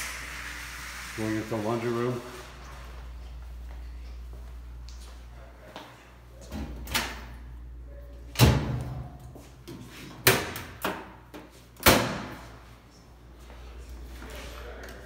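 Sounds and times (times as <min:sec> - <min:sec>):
appliance lids and doors banging: 0:08.3 - 0:09.1, 0:11.8 - 0:12.4.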